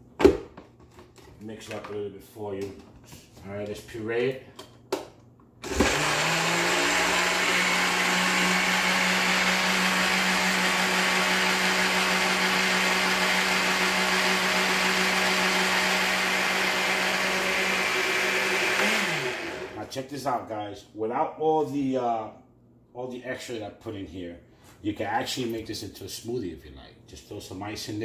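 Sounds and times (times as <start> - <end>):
blender motor running: 5.6 - 19.8.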